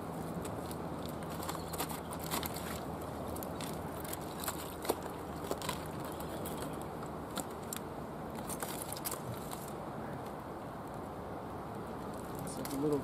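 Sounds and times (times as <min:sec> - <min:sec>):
fishing gear clicking on rocks: 0:00.4 - 0:10.4.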